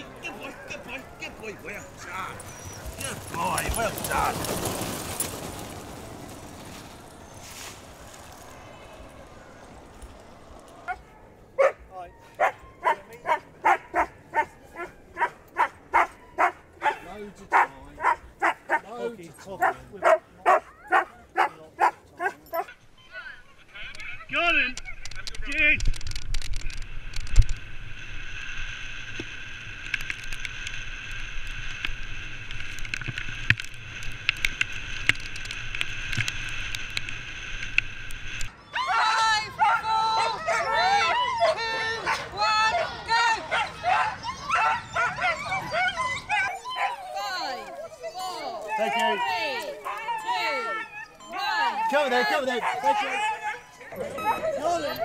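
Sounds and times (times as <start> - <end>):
wheeled rig rolling on trail: 0.0 - 11.6, 31.3 - 55.0
dog barking and yipping: 10.9 - 18.9, 19.6 - 22.7, 38.8 - 55.0.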